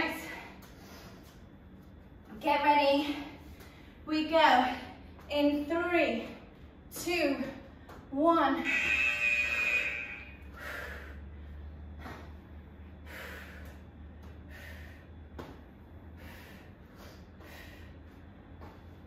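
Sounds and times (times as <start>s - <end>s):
steady low hum: 0.0s - 19.0s
woman breathing hard: 10.4s - 11.9s, 12.8s - 18.7s.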